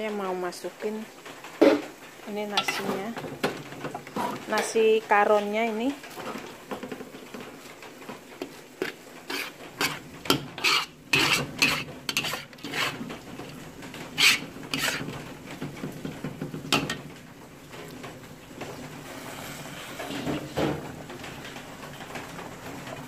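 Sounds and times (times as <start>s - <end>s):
metal spatula scraping a wok: 2.6s - 3.2s, 3.8s - 4.9s, 8.8s - 15.2s, 19.0s - 20.6s.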